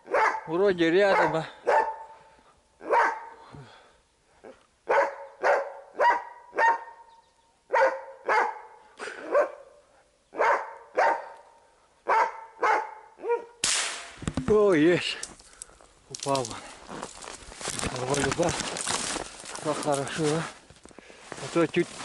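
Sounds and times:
hunting dog barking: 0.0s - 3.5s, 4.4s - 7.1s, 7.7s - 13.6s.

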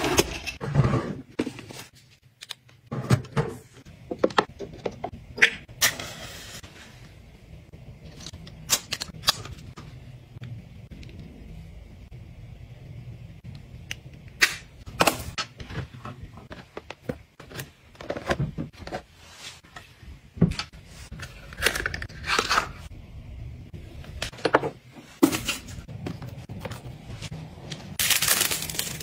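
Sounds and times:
packaging rustling: 28.0s - 29.0s.

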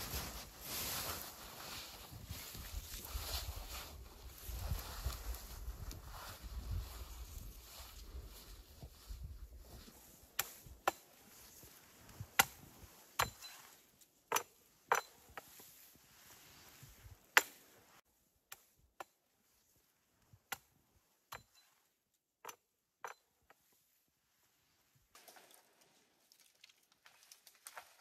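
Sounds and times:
wood branches cracking and snapping: 25.2s - 28.0s.

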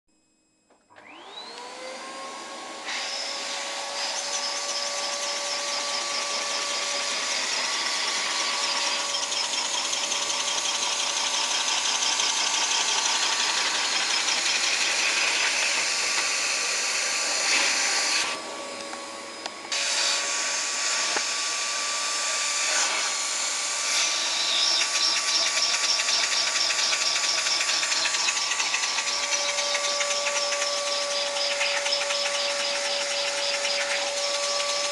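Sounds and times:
vacuum cleaner motor whining: 0.7s - 34.9s
toy engine clattering: 24.5s - 34.9s.

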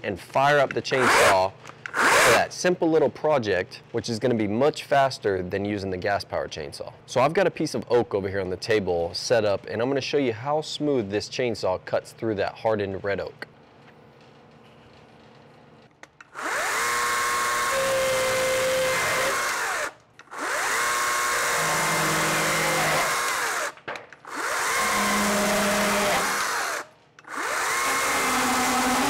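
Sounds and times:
battery chainsaw cutting wood: 1.0s - 2.5s, 16.3s - 29.0s.

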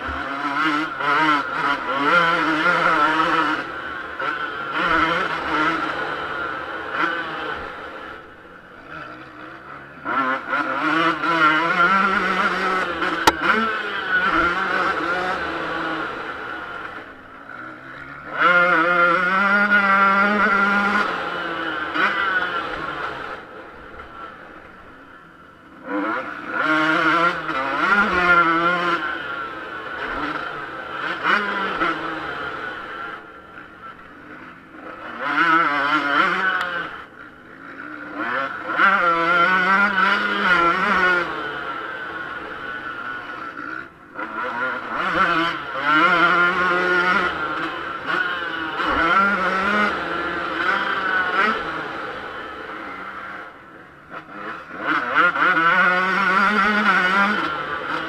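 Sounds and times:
motocross engine revving: 0.0s - 58.0s.

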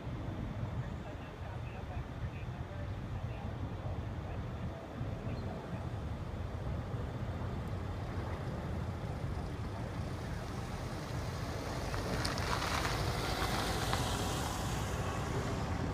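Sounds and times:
street traffic rumble: 0.0s - 15.9s
car driving past: 10.0s - 15.9s.

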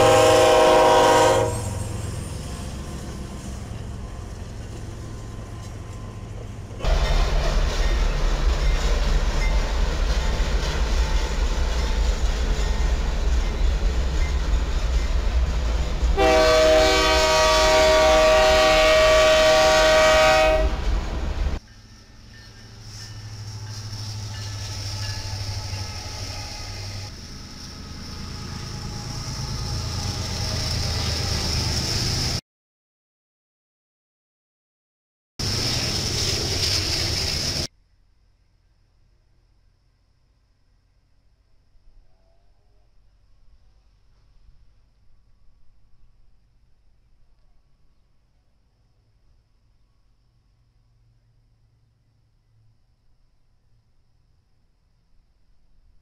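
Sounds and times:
locomotive air horn: 0.0s - 2.8s, 6.8s - 7.5s, 16.2s - 21.0s, 28.3s - 31.4s
diesel locomotives rumbling: 0.0s - 32.4s, 35.4s - 37.7s
freight train rumbling past: 0.0s - 32.4s, 35.4s - 37.7s.

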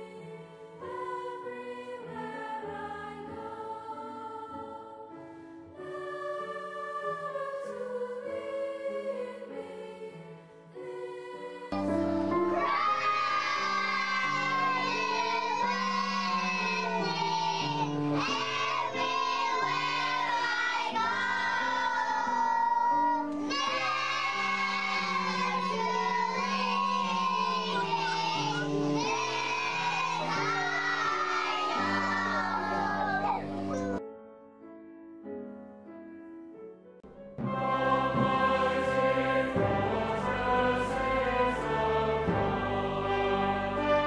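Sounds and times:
children singing: 5.8s - 10.0s, 10.8s - 34.0s, 37.5s - 44.0s.

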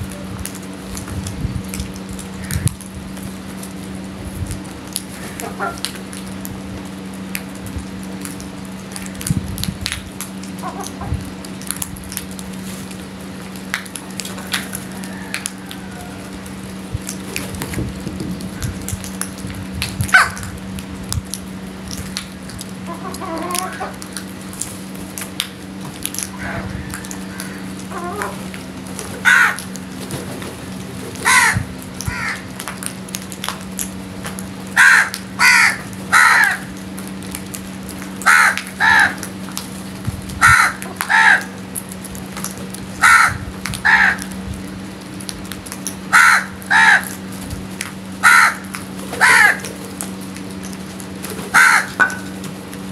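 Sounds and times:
steady low hum: 0.0s - 52.9s
crows cawing: 2.3s - 2.9s, 5.1s - 5.9s, 10.6s - 11.1s, 14.4s - 16.5s, 20.2s - 20.5s, 22.8s - 24.2s, 26.3s - 28.5s, 29.1s - 29.8s, 31.2s - 32.6s, 34.7s - 36.8s, 38.2s - 39.4s, 40.4s - 41.6s, 43.0s - 44.4s, 46.1s - 47.3s, 48.2s - 49.8s, 51.5s - 52.4s.

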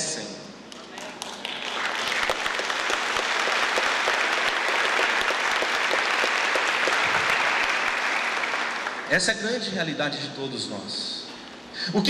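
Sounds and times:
crowd applauding: 0.7s - 9.2s.

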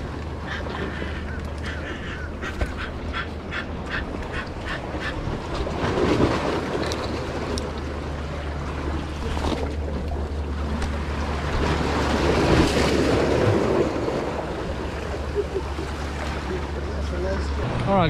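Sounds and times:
harsh animal calls: 0.4s - 5.2s.

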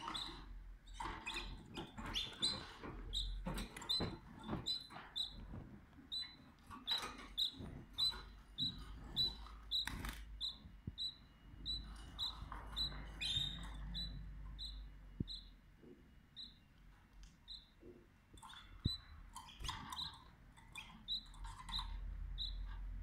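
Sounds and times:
canary cheeping: 0.0s - 15.6s, 16.3s - 16.8s, 17.4s - 17.8s, 18.4s - 22.8s.

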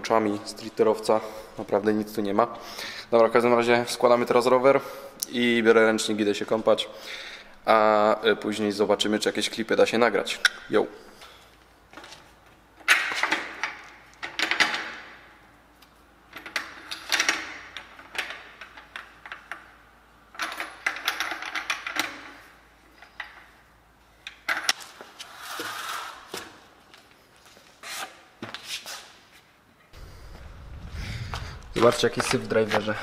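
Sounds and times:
bike parts clicking and clattering: 11.2s - 25.2s.

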